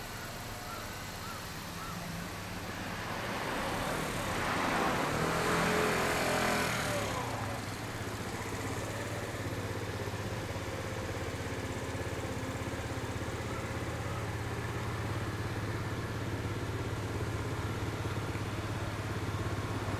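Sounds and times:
motorcycle engine idling: 0.0s - 19.9s
vehicle passing by: 1.8s - 10.6s.

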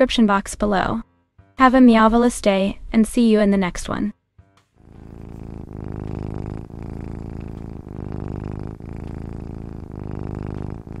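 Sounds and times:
cat purring: 4.8s - 11.0s.

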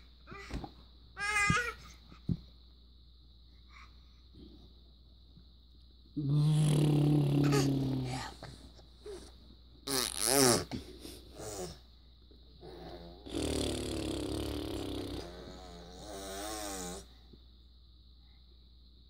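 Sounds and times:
toddler humming: 6.2s - 8.3s
toddler raspy vocal noise: 6.2s - 8.4s.

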